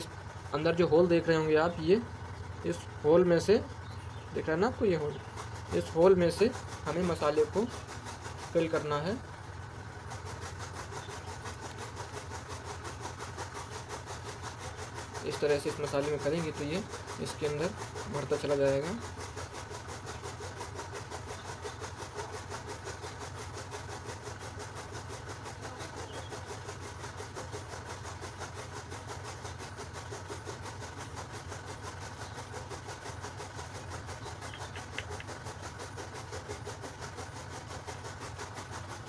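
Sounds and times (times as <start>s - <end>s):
pulsing machine noise: 0.0s - 39.0s.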